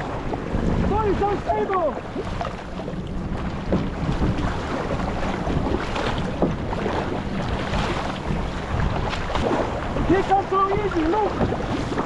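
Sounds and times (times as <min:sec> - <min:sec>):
paddle strokes splashing: 0:00.0 - 0:12.0
water rushing along hull: 0:00.0 - 0:12.0
wind buffeting microphone: 0:00.0 - 0:12.0.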